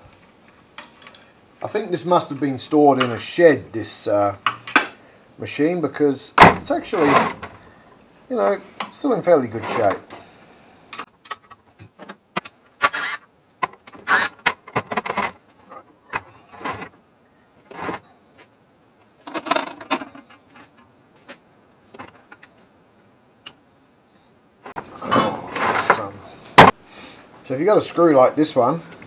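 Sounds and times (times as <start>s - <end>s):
scraping of metal parts: 6.6s - 7.6s, 9.6s - 10.3s.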